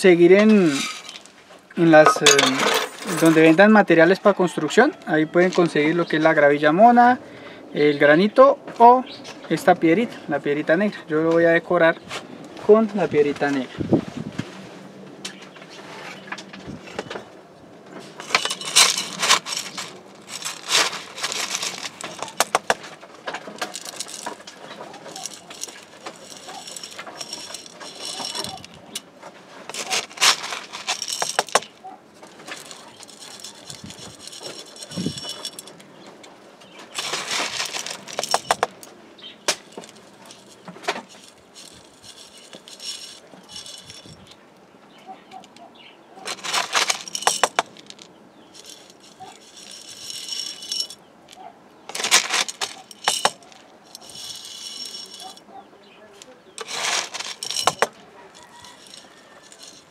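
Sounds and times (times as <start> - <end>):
gravel stones clattering: 0.3 - 3.8, 15.5 - 44.4, 46.2 - 59.9.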